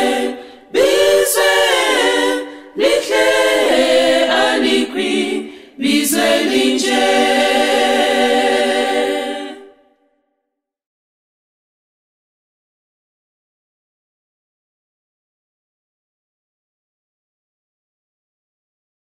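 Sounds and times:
choir singing a hymn: 0.0 - 9.9.

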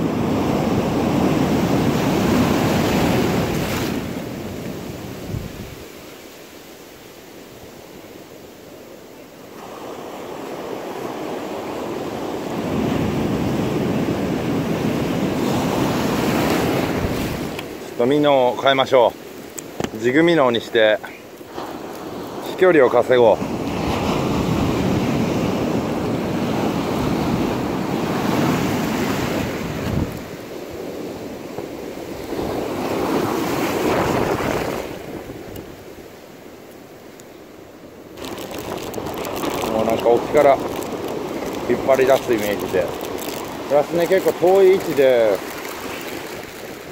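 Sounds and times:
waves breaking: 0.0 - 46.9
wind buffeting microphone: 5.2 - 5.9, 23.5 - 35.9
whitewater washing in: 9.5 - 36.4, 38.1 - 46.9.

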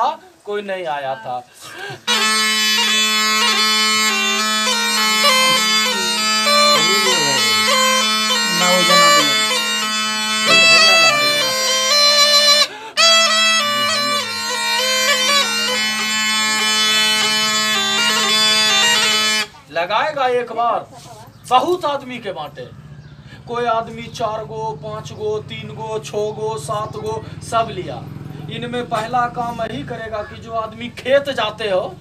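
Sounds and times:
reed pipe drone and melody: 2.0 - 19.6.

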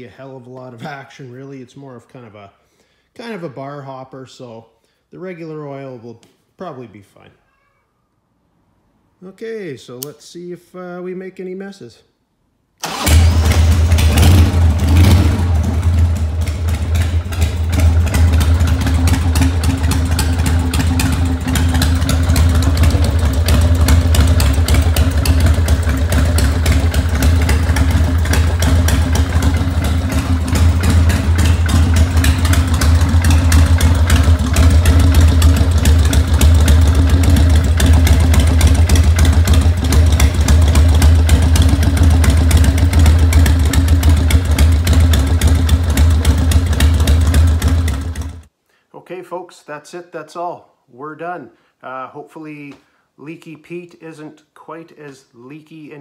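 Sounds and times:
motorcycle engine starting and idling: 12.8 - 48.5.

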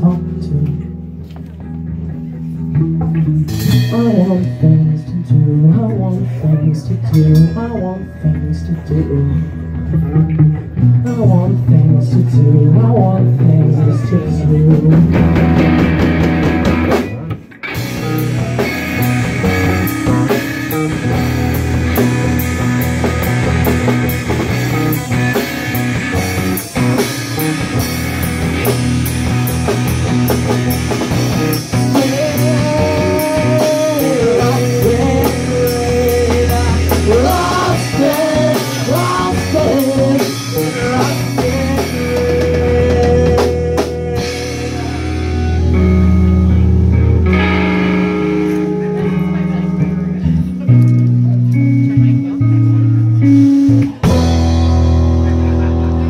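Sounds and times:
bass guitar: 0.0 - 56.0
bending lead guitar notes: 0.0 - 56.0
electric guitar: 0.0 - 56.0
drum kit with cymbals: 2.9 - 4.9, 14.8 - 46.7, 53.4 - 56.0.

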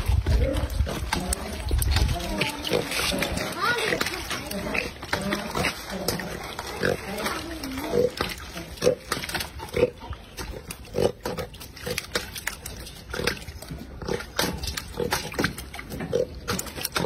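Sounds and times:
fish thrashing against metal: 0.0 - 17.0
water splashing: 0.0 - 17.0.

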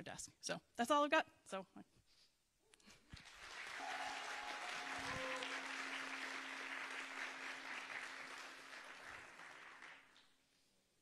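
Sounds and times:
audience applauding: 3.1 - 10.4.

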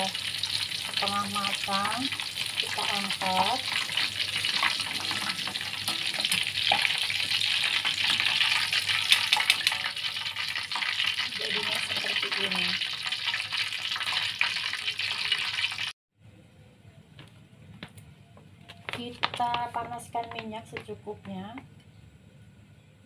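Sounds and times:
tofu deep-frying in hot oil: 0.0 - 15.9
utensil clicking and scraping in pan: 0.1 - 15.9.

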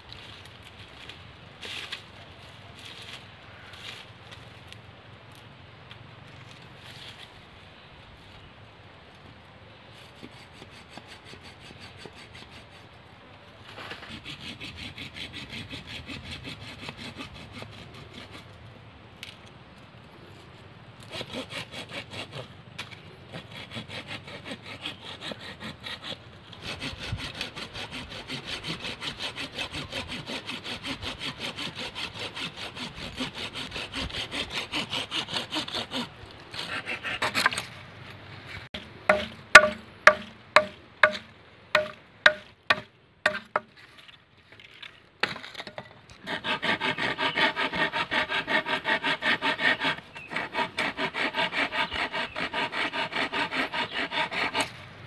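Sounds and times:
hand saw cutting wood: 10.2 - 13.0, 13.8 - 18.6, 21.0 - 37.8, 38.5 - 43.8, 46.2 - 54.9
machete chopping wood: 38.8 - 43.7.

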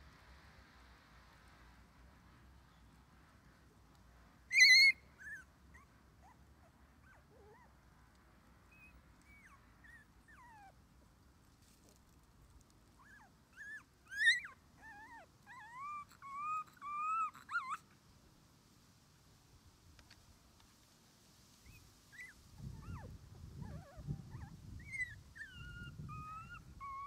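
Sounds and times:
puppy squealing: 4.5 - 5.4, 13.6 - 15.0, 24.8 - 27.0
puppy whimpering: 4.5 - 6.4, 13.0 - 17.8, 22.2 - 27.0.

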